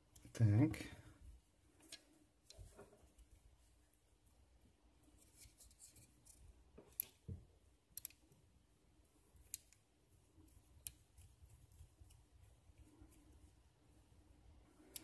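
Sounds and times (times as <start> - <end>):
sharp plastic clicks: 7.9 - 8.3.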